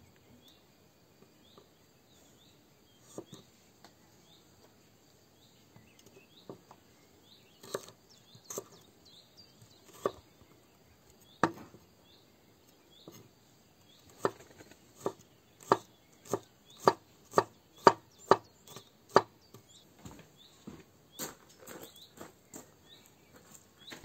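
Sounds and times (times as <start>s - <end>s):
knife chopping on wooden board: 7.6s - 8.7s, 9.8s - 10.2s, 11.4s - 11.8s, 14.1s - 14.4s, 15.0s - 19.6s.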